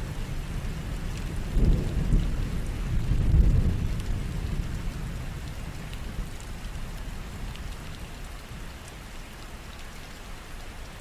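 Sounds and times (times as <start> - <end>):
low rumble of thunder: 0.0 - 8.6
steady rain: 0.0 - 11.0
rain drop ticks: 0.1 - 11.0.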